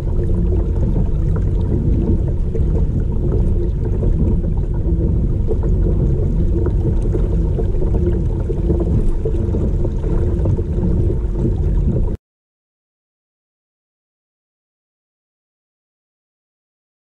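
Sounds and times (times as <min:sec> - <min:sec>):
water lapping against hull: 0:00.0 - 0:12.2
wind rumble on microphone: 0:00.0 - 0:12.2.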